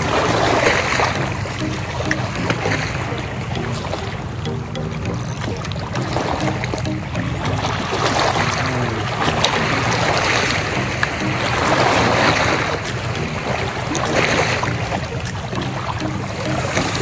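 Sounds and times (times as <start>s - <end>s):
background music with bass: 0.0s - 17.0s
surf washing over rocks: 7.7s - 17.0s.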